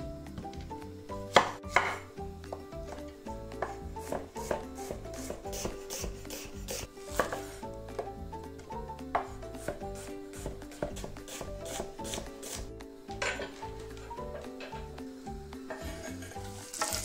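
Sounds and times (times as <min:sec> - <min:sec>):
background music: 0:00.0 - 0:17.0
knife slicing onion on wooden board: 0:01.2 - 0:08.2, 0:09.1 - 0:13.8.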